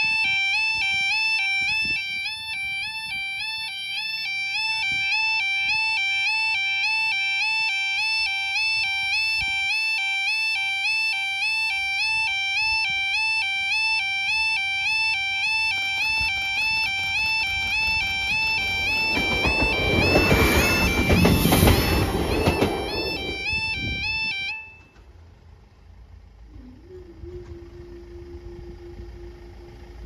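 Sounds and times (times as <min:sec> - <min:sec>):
two-tone warbling crossing alarm: 0:00.0 - 0:25.4, 0:26.0 - 0:30.0.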